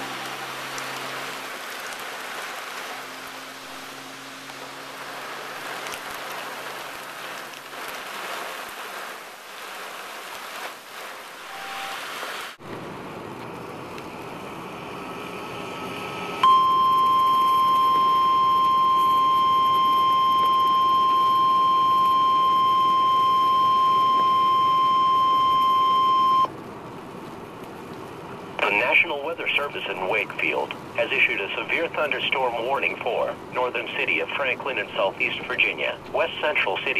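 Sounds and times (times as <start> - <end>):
rain drumming on a car: 0.0 - 14.6, 16.4 - 36.9
weather radio alarm tone: 11.4 - 12.0, 16.4 - 26.5, 28.6 - 36.9.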